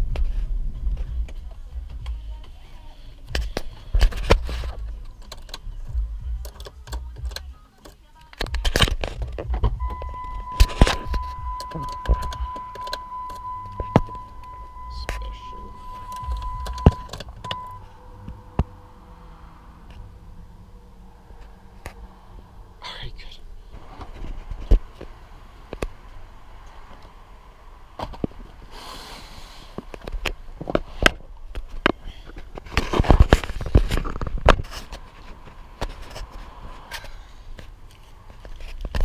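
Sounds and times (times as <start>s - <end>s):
clicks and knocks in car: 3.3s - 15.2s, 15.8s - 17.7s
car warning tone: 9.7s - 23.3s.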